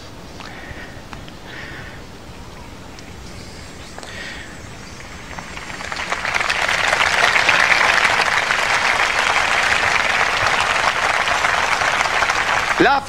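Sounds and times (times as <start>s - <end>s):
large crowd applauding: 4.0s - 13.0s.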